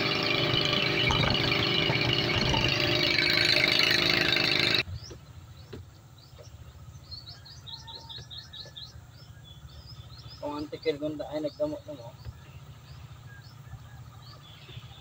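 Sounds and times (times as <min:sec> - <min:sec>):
boat engine running: 0:00.0 - 0:06.7
small birds chirping: 0:04.2 - 0:15.0.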